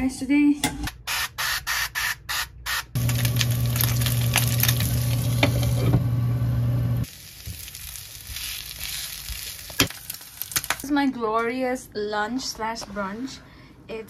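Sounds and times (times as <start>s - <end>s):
low hum: 3.0s - 7.0s
food sizzling in pan: 3.0s - 10.8s.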